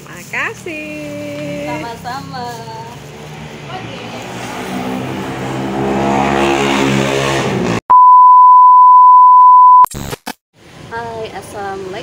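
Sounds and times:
steady test tone beep: 0:07.9 - 0:09.9.

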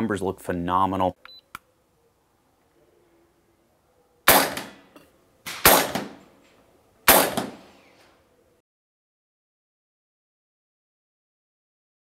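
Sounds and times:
air rifle shots cracking: 0:04.3 - 0:06.3, 0:07.1 - 0:07.7.

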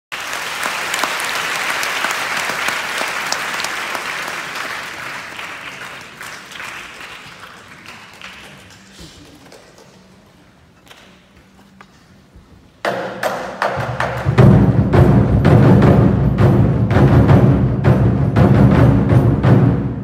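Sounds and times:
audience applause: 0:00.1 - 0:10.2.

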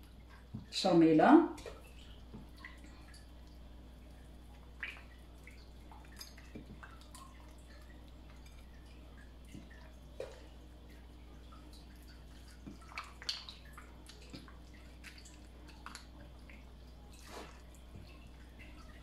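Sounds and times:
low steady hum: 0:00.0 - 0:19.0
wet squelches of hands on meat: 0:11.9 - 0:19.0.

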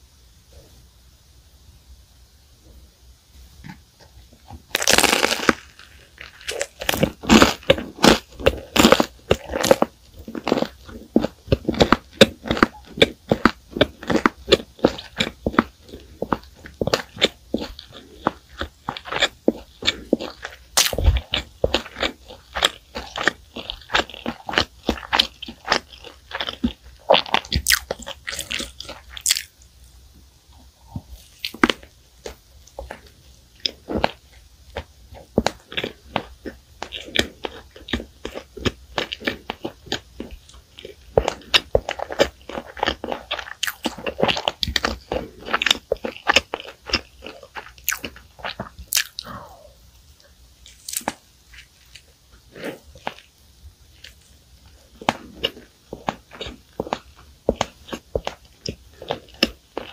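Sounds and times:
crisp crunching chews: 0:04.6 - 0:29.6, 0:30.9 - 0:49.6, 0:50.2 - 0:59.9
crunching bite into pastry: 0:04.7 - 0:29.5, 0:32.8 - 0:49.4.

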